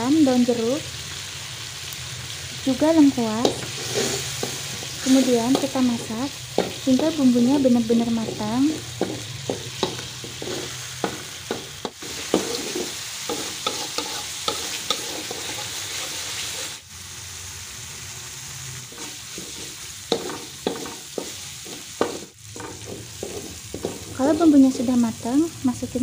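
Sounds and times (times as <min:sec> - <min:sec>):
paste sizzling in wok: 0:00.0 - 0:26.0
metal spatula scraping pan: 0:03.2 - 0:16.8, 0:18.9 - 0:24.4.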